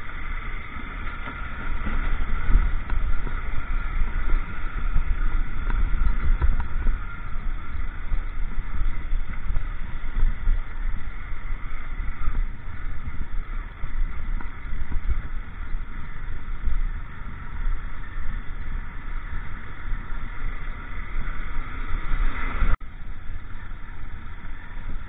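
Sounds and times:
motorcycle rumble on gravel: 0.0s - 25.0s.

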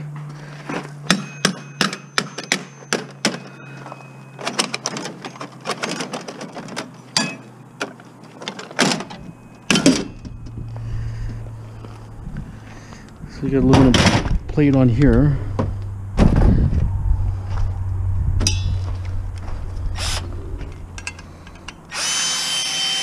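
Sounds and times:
metal parts clicking and rattling: 1.0s - 10.6s, 20.1s - 21.9s
steady low hum: 6.7s - 22.1s.

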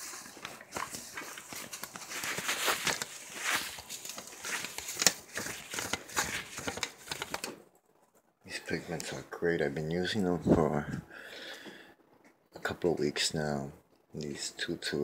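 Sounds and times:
paper rustling and crinkling: 0.0s - 8.2s.

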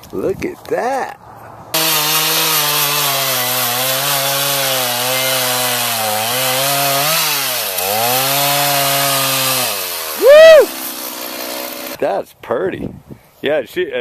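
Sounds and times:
chainsaw cutting log: 1.8s - 12.0s.

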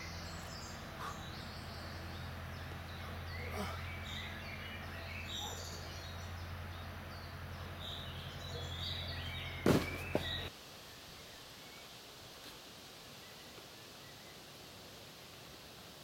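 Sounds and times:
steady low hum: 0.0s - 10.5s
birds chirping: 0.0s - 12.2s
sharp thud: 9.6s - 10.5s.

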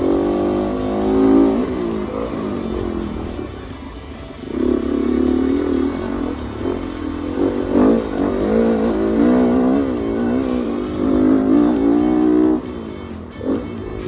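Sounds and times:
dirt bike engine revving: 0.0s - 14.0s.

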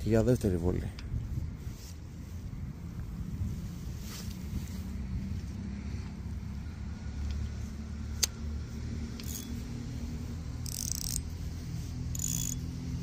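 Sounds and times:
steady low rumble: 0.0s - 13.0s
fishing reel click: 9.2s - 9.5s, 10.6s - 11.2s, 12.2s - 12.6s.

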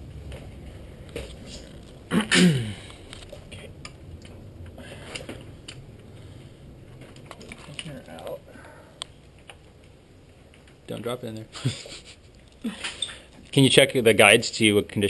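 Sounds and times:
small metal parts clicking and scraping: 12.4s - 13.4s.

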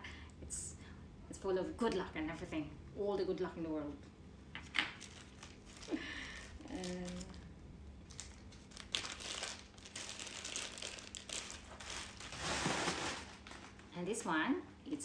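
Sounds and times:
plastic bag crinkling: 4.9s - 13.9s.

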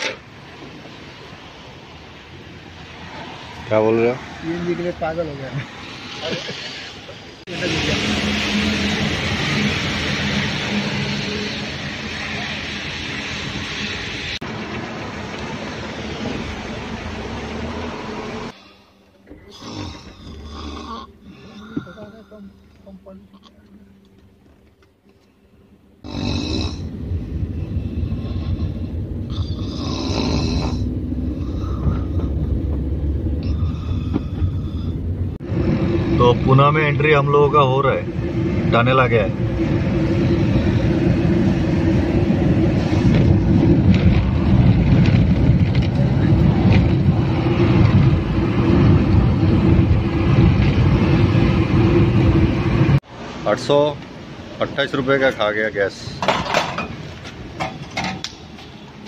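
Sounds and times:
car road and engine noise: 0.0s - 59.0s
man snoring: 19.5s - 21.9s, 26.0s - 26.9s, 28.3s - 32.1s.

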